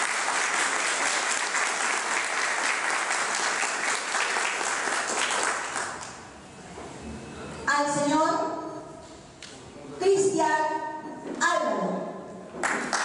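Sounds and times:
small group applauding: 0.0 - 6.3, 12.6 - 13.0.

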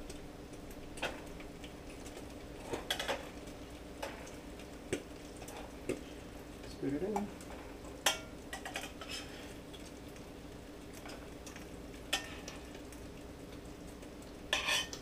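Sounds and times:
fish sizzling in a frying pan: 0.0 - 15.0
utensil scraping a pan: 8.1 - 9.5, 14.5 - 15.0.

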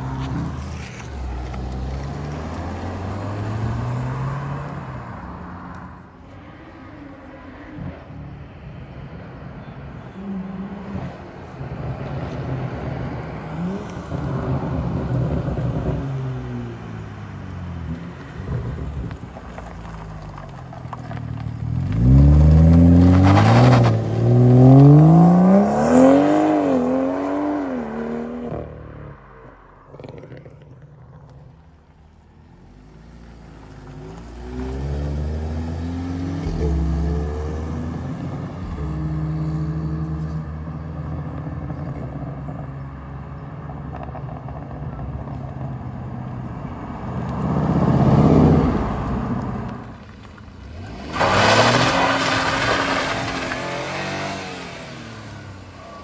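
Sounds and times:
car engine approaching: 0.0 - 56.0
cars accelerating away: 19.8 - 28.8, 32.7 - 44.6, 46.4 - 56.0
car engine revving through gears: 21.8 - 28.8, 33.4 - 42.1, 50.6 - 56.0.

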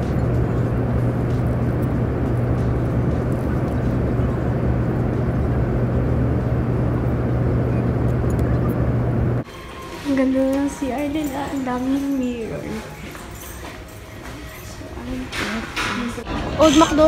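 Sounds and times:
rush of air in cabin: 0.0 - 9.4
steady low hum: 0.0 - 9.5.

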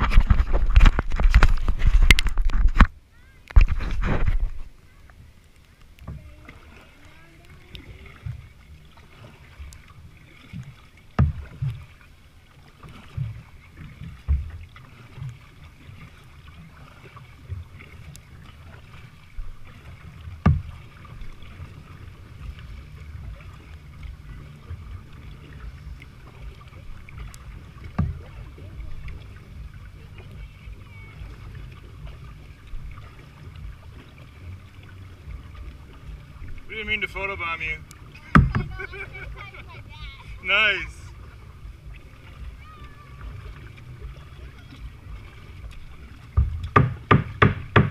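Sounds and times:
water sloshing against kayak hull: 0.0 - 47.9
knocks on plastic hull: 27.9 - 28.3, 38.3 - 38.8, 46.4 - 47.9.

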